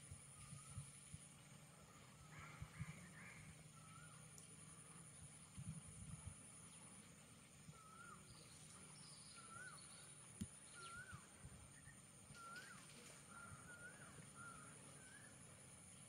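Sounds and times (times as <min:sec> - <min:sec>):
bird whistled call: 0:03.8 - 0:04.2, 0:07.7 - 0:15.5.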